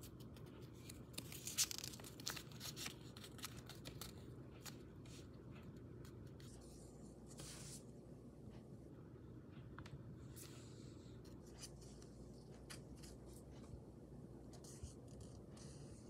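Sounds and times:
paper crinkling: 0.0 - 5.3
paper rustle: 0.0 - 5.3.

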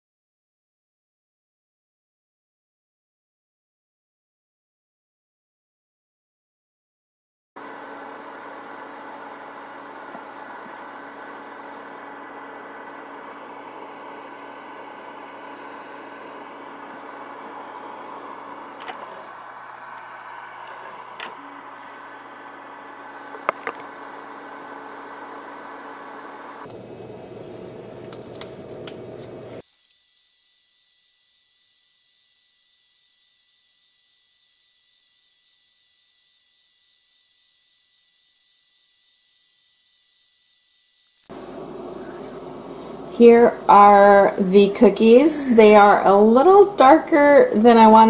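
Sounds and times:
oven fan whirring hum: 7.6 - 29.6, 41.3 - 48.0.

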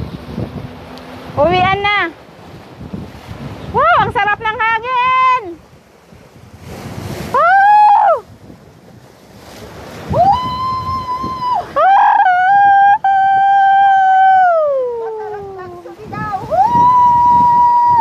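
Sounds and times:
wind gust on microphone: 0.0 - 18.0
woman calling out: 3.8 - 5.6, 10.2 - 17.2.

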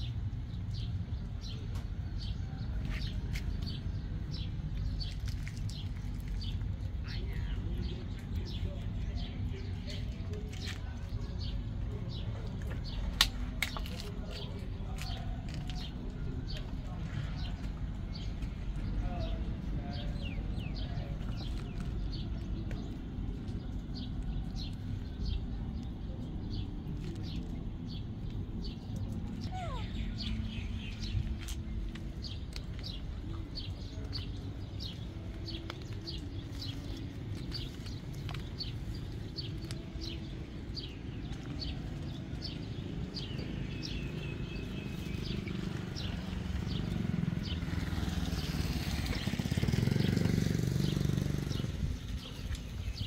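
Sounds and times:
low outdoor rumble: 0.0 - 53.0
small bird chirping: 28.6 - 31.7.

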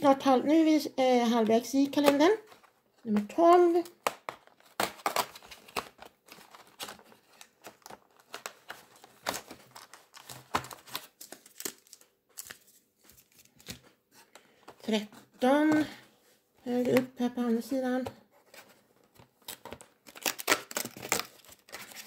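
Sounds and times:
foil packet crinkling: 4.4 - 13.8, 19.4 - 22.0.

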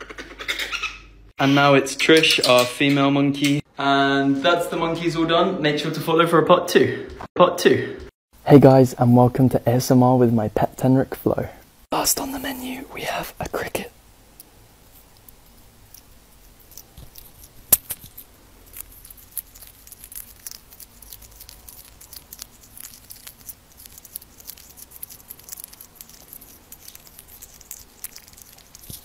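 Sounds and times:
small animal crunching and chewing: 13.0 - 29.0.

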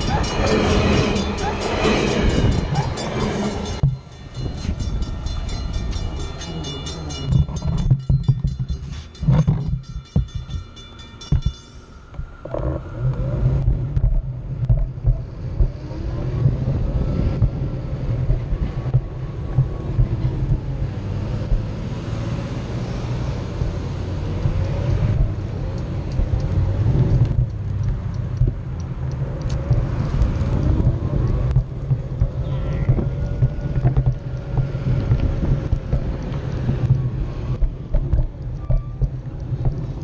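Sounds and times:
ringing repeating railway tone: 0.0 - 12.5
wheel rumbling over pavement: 0.0 - 40.0.

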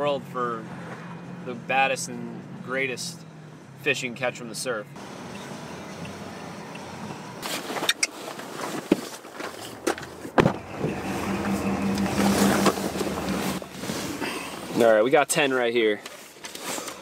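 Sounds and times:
road noise: 0.0 - 17.0
rustling: 7.4 - 15.0
sharp knocks and clunks: 9.9 - 11.0
low hum: 10.4 - 14.8.

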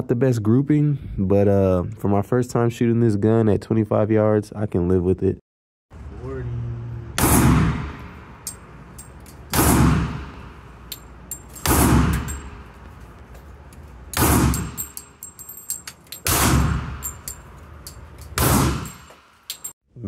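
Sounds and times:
light metallic clinks: 8.4 - 9.5, 10.8 - 13.9, 14.5 - 19.8.

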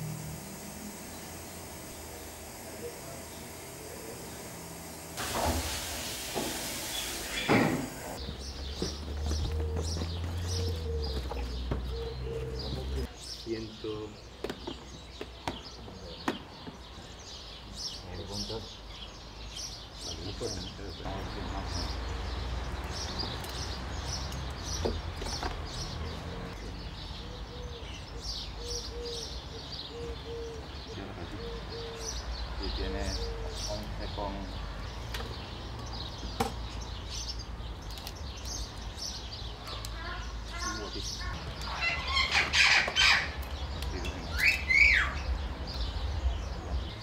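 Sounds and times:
songbirds chirping: 0.0 - 47.0
low cooing bird call: 9.3 - 13.0, 26.6 - 33.8
lynx cub squawking and squealing: 40.1 - 43.4, 44.3 - 45.3.

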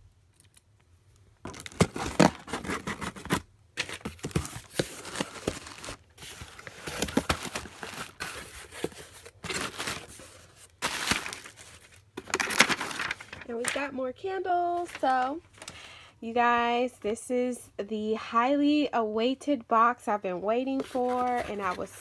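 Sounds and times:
plastic packing crinkling: 1.4 - 13.8
cardboard box being opened: 1.5 - 13.2.

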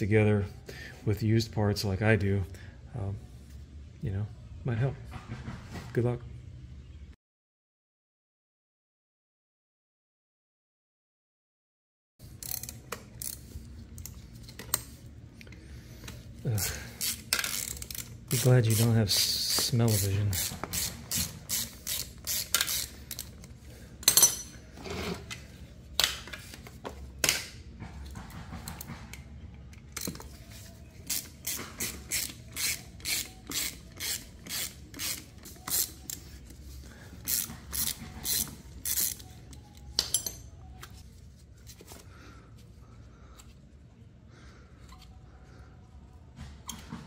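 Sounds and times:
socket ratchet clicking: 17.0 - 18.8, 19.5 - 24.2, 31.1 - 36.2, 37.2 - 39.3.

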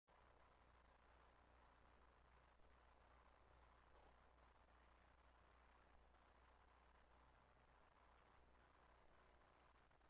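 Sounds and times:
faint low hum: 0.1 - 10.0.

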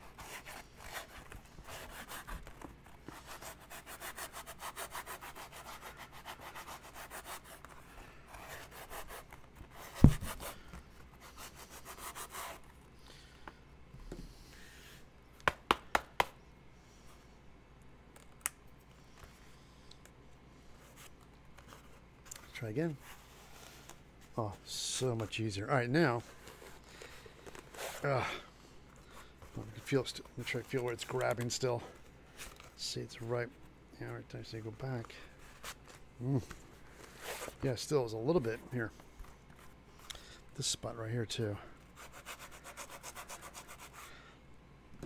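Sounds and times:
hand sanding foam: 0.0 - 2.4, 3.1 - 7.7, 8.3 - 10.6, 11.2 - 12.6, 42.0 - 44.0.

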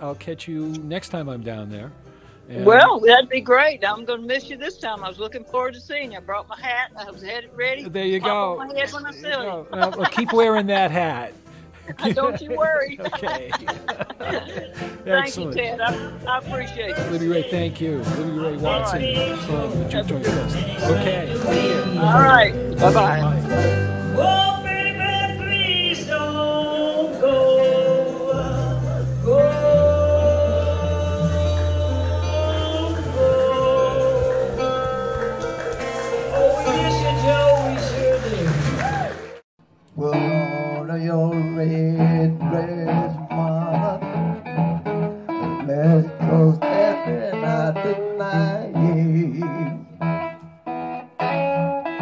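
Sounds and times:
picked acoustic guitar: 0.0 - 39.1, 40.0 - 52.0
person singing blues: 6.9 - 38.8, 39.9 - 52.0
low bass tones: 11.9 - 39.0.

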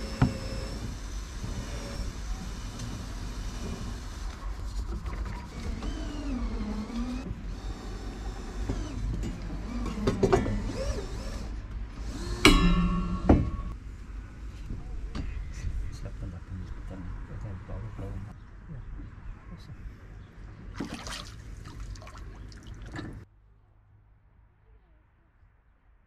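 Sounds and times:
sharp metallic clank ringing: 12.5 - 13.8
steady low rumble: 12.6 - 20.8.

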